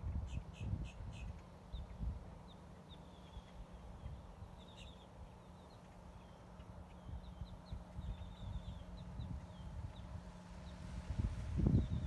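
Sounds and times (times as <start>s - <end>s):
wind rumble on microphone: 0.0s - 2.6s, 6.8s - 12.0s
birds chirping: 0.0s - 12.0s.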